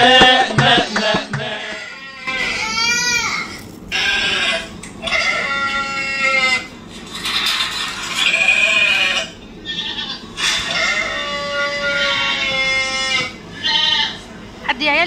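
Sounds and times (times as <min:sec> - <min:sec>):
sheep bleating: 0:00.0 - 0:02.7, 0:03.9 - 0:06.7, 0:08.2 - 0:14.3.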